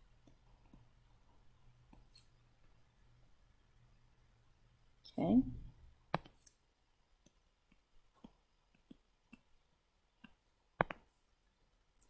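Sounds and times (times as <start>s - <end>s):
stylus tapping on tablet screen: 1.8s - 2.3s, 6.1s - 6.6s, 7.2s - 11.1s.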